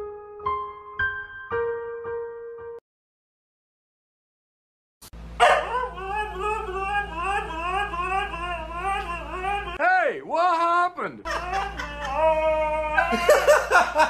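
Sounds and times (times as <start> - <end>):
husky howling: 5.4 - 9.8.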